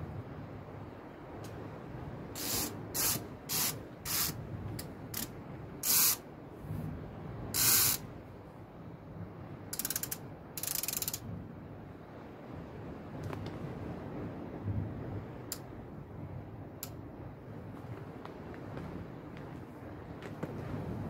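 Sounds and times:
fishing reel hissing bursts: 2.4s - 4.4s, 5.2s - 6.2s, 7.6s - 8.0s, 9.8s - 11.2s
reel ratchet clicking: 2.4s - 4.4s, 5.1s - 6.2s, 7.6s - 8.0s, 9.7s - 11.2s.

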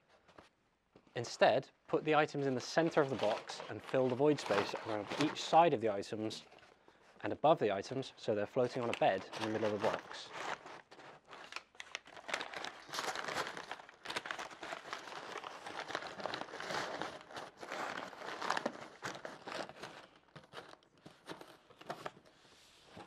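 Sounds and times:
paper pads crinkling: 2.2s - 6.7s, 8.4s - 22.2s.

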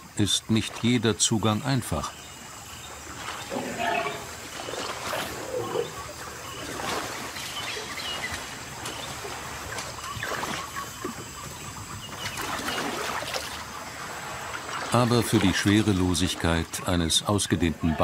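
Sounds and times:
mud sloshing and squelching: 2.9s - 11.4s, 12.1s - 16.6s.

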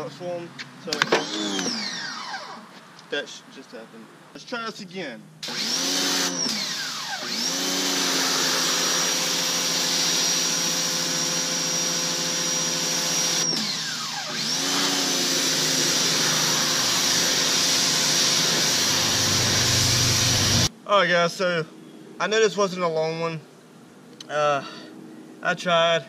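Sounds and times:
pressure washer motor whining: 0.9s - 2.6s, 5.4s - 20.7s.

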